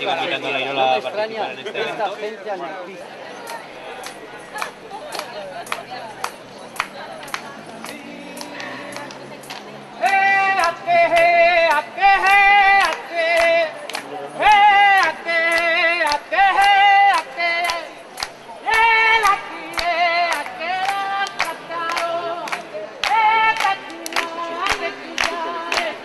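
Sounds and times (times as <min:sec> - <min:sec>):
person singing with vibrato: 0:07.7 - 0:26.0.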